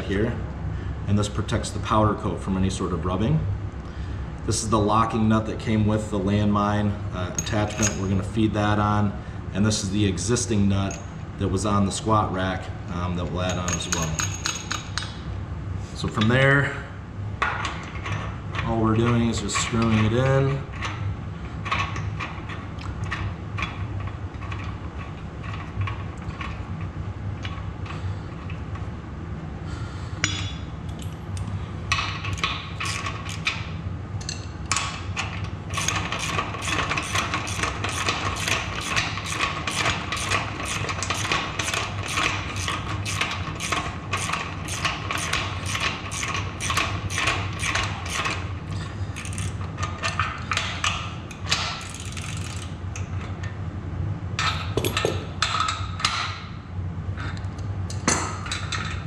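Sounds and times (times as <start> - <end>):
steady low hum: 0.0 - 59.0
metal tools clattering: 7.4 - 8.1
ratchet wrench clicking: 32.3 - 33.6, 35.7 - 48.5, 49.2 - 49.6, 51.6 - 52.7.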